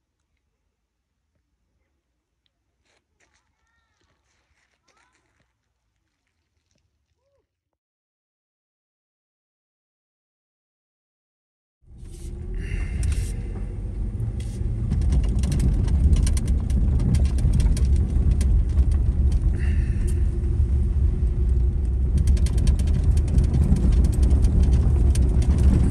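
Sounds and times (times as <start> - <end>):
car rumbling on gravel road: 11.9 - 25.9.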